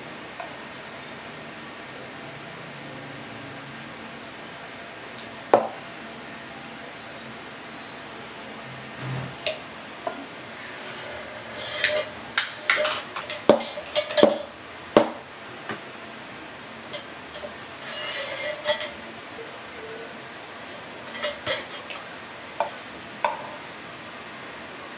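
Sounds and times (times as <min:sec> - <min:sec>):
short scrapes: 0:10.6 - 0:12.2, 0:17.8 - 0:19.0.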